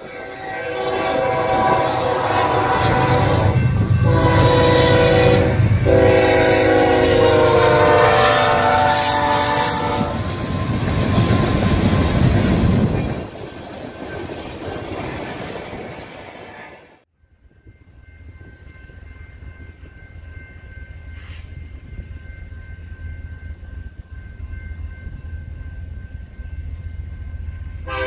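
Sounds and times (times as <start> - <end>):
train air horn blasts: 0.0 - 11.5, 21.2 - 21.6
diesel locomotive rumble: 0.0 - 16.0
train cars clattering past: 0.0 - 28.0.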